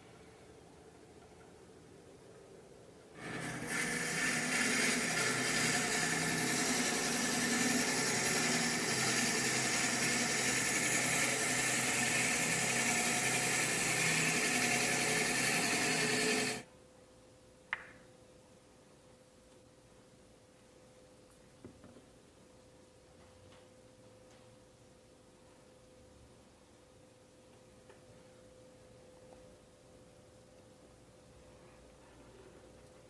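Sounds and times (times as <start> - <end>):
drill bit boring through wood: 3.2 - 16.6
lathe spinning: 3.2 - 16.6.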